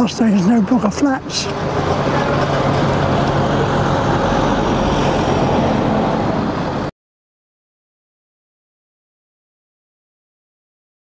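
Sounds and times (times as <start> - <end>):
road traffic rumble: 0.0 - 6.9.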